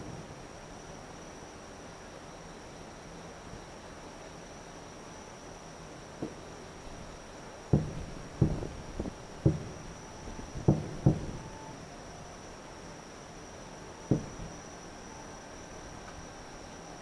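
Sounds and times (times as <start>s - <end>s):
distant firework booms: 7.7s - 11.6s, 14.0s - 14.8s.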